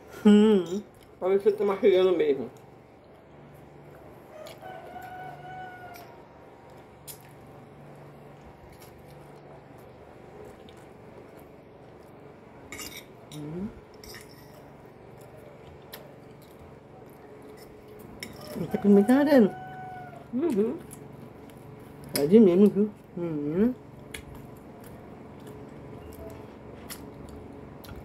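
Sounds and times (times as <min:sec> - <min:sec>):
rooster crowing: 0:04.3 - 0:06.6, 0:18.4 - 0:20.4.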